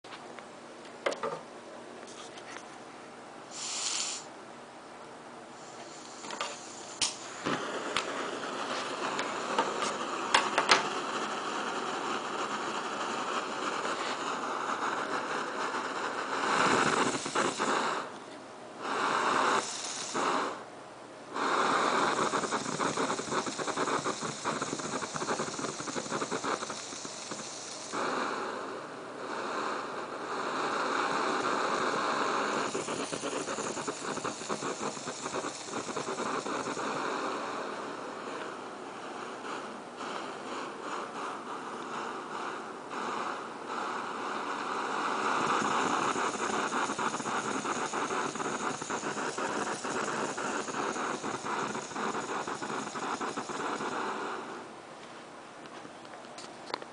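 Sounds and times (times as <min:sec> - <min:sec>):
gas stove hissing: 0:01.0 - 0:01.5, 0:03.4 - 0:04.5, 0:05.4 - 0:55.4
igniter clicks: 0:06.1 - 0:07.3.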